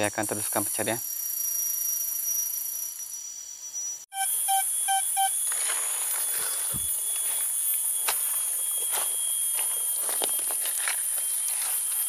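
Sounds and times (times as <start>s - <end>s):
insects droning: 0.0s - 12.0s
short electronic beeps: 4.1s - 12.0s.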